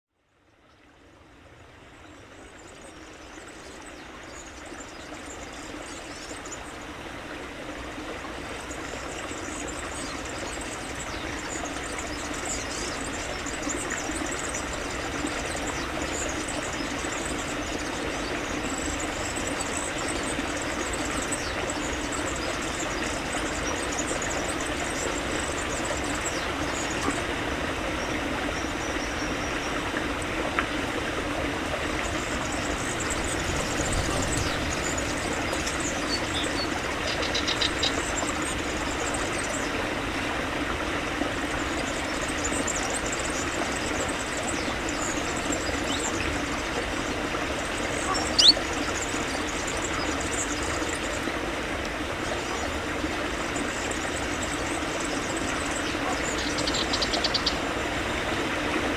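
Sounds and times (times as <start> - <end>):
stream flowing over rocks: 0.8 - 58.9.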